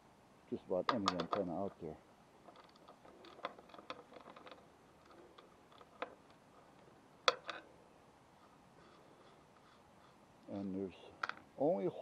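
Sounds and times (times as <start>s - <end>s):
light clicks and taps of handling: 0.8s - 1.9s, 2.5s - 7.7s, 10.4s - 11.5s.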